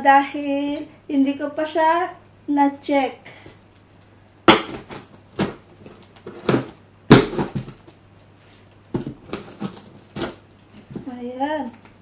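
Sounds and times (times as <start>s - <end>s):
scissors cutting packing tape: 9.0s - 10.5s.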